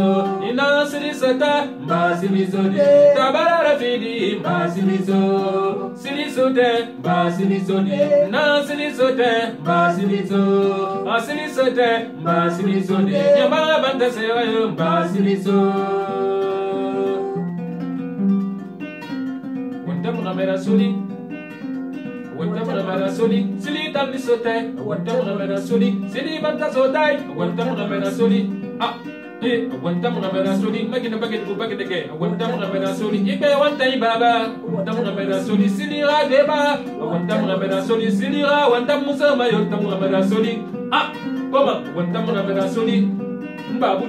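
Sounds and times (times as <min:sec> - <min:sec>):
man and woman singing: 0:00.0 - 0:17.4, 0:19.9 - 0:21.0, 0:22.3 - 0:44.0
kora plucked: 0:12.2 - 0:23.9.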